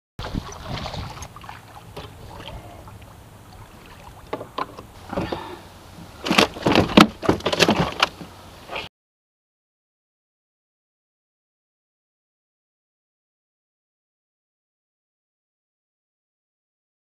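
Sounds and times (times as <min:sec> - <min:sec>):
fish splashing at the surface: 0:00.2 - 0:04.3
rattle of gear and line: 0:04.3 - 0:08.9
knocks and thumps in plastic cooler: 0:06.2 - 0:08.3.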